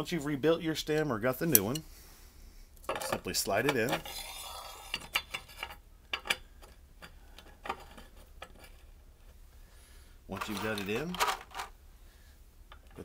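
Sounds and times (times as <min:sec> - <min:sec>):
metal stem scraping: 0:01.4 - 0:01.9, 0:03.5 - 0:05.8.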